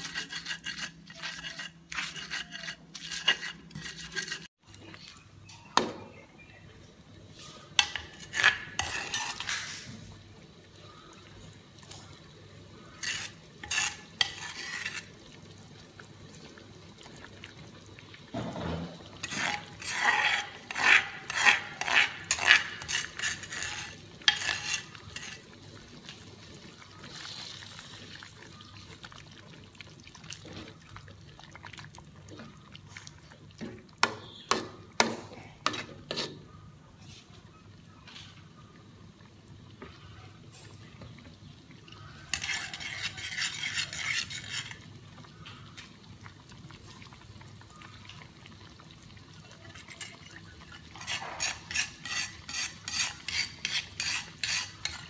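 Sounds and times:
metal spatula scraping a wok: 0.0s - 4.5s, 7.4s - 10.0s, 12.8s - 15.2s, 18.6s - 25.5s, 35.6s - 36.5s, 42.2s - 44.9s, 49.8s - 55.0s
stone pestle grinding in mortar: 0.0s - 4.5s, 8.0s - 9.8s, 13.0s - 15.1s, 19.2s - 25.4s, 42.3s - 44.8s, 51.0s - 55.0s.

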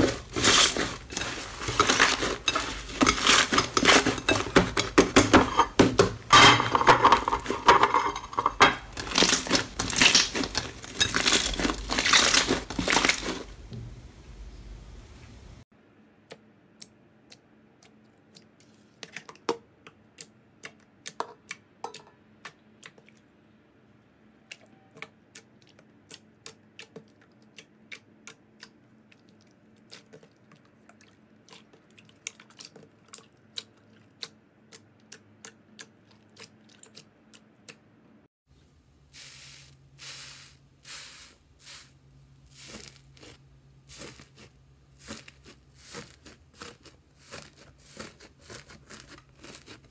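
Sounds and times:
crusted slime crunching: 0.0s - 4.8s, 8.9s - 13.5s, 42.5s - 49.9s.

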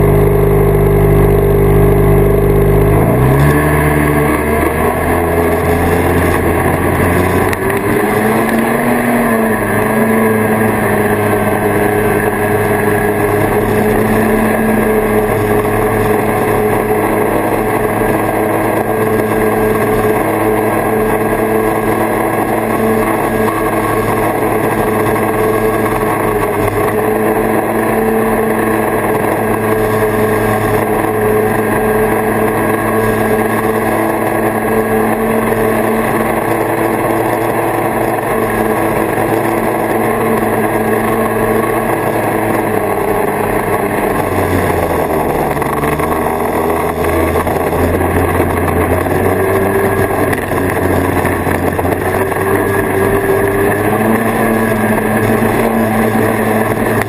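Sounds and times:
snowmobile engine revving: 0.0s - 57.0s.

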